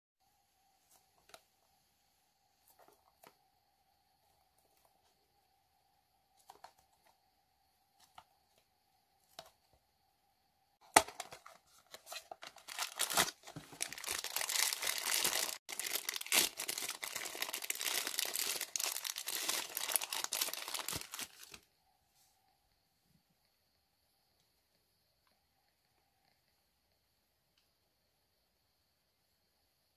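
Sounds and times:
plastic wrapper crinkling: 10.8 - 21.6.

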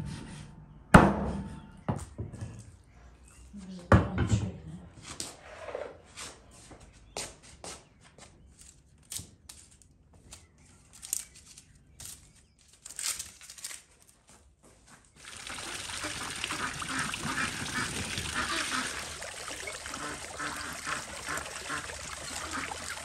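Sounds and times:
water pouring: 15.2 - 23.0.

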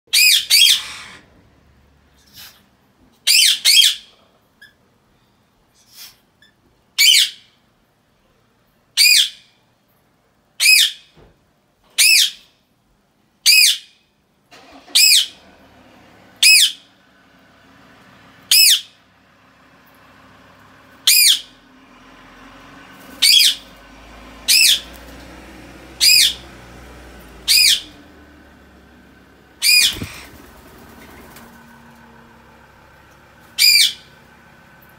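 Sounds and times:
parakeet high-pitched calls: 0.1 - 1.2, 3.2 - 4.8, 6.4 - 7.5, 9.0 - 9.4, 10.6 - 11.1, 12.0 - 12.4, 13.4 - 14.0, 14.9 - 15.4, 16.4 - 16.9, 18.4 - 19.0, 21.0 - 21.6, 23.1 - 23.7, 24.4 - 25.0, 26.0 - 26.5, 27.4 - 28.0, 29.6 - 30.4, 33.5 - 34.1.

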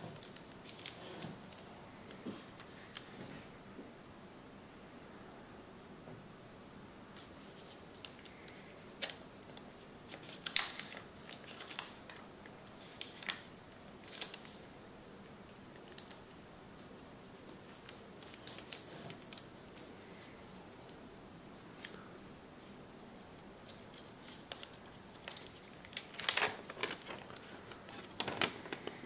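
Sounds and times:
paper crinkling and crackling: 0.0 - 3.3, 7.1 - 14.7, 15.7 - 21.0, 23.6 - 29.0.

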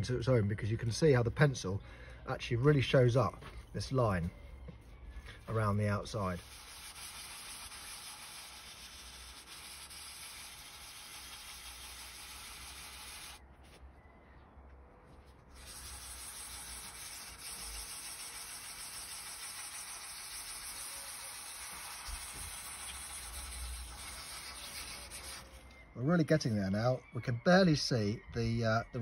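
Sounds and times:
sandpaper rasping on gelcoat: 5.4 - 13.4, 15.5 - 25.7.

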